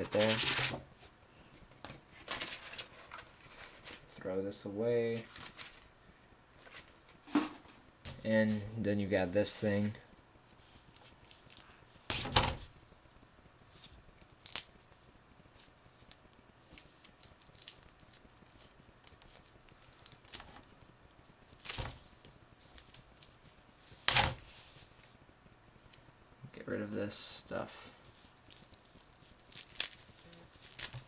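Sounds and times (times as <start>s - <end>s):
plastic wrapping crinkling: 2.1s - 4.2s, 5.1s - 5.9s, 13.7s - 20.8s, 28.1s - 31.0s.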